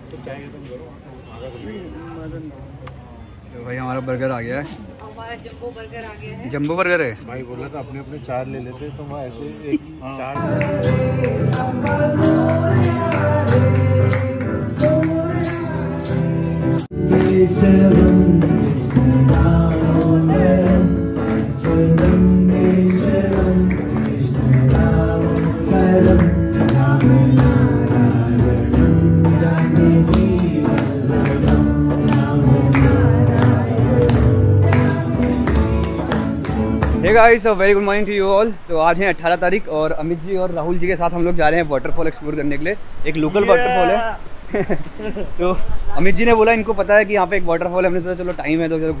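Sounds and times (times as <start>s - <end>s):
acoustic guitar: 10.3s - 37.5s
group devotional singing: 10.4s - 36.9s
hand drum: 10.4s - 37.1s
hand-clapping: 10.4s - 37.2s.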